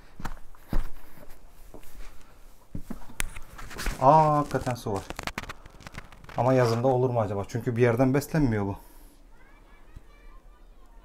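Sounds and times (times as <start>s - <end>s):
footsteps on stony ground: 0.0s - 6.9s.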